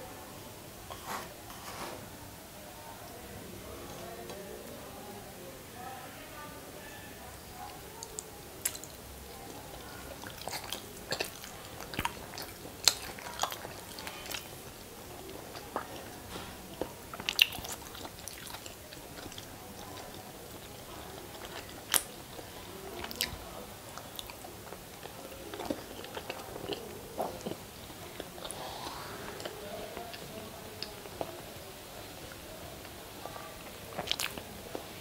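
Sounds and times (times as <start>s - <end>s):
person biting and wet chewing: 33.9s - 34.4s.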